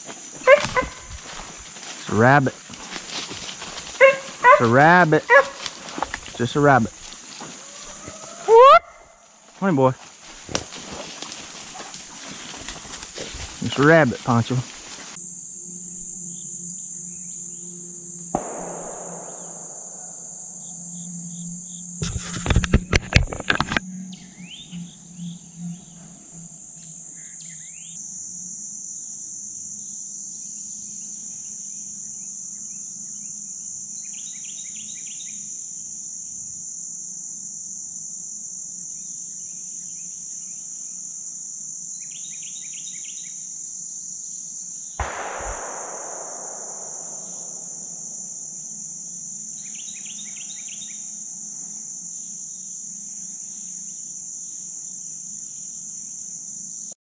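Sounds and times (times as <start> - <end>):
insects droning: 0.0 - 57.0
distant gunshot echoing: 18.4 - 20.7, 45.0 - 48.4.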